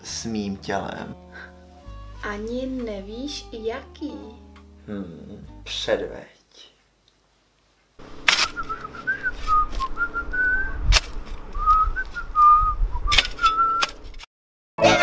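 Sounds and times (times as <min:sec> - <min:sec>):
shovel scraping dirt and stones: 0:08.2 - 0:09.7
person whistling a tune: 0:08.4 - 0:10.8, 0:11.6 - 0:13.9.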